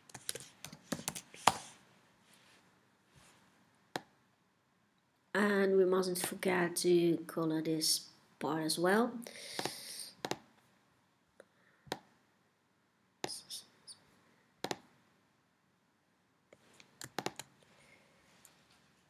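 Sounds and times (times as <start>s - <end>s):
computer mouse buttons clicking: 16.8s - 17.5s.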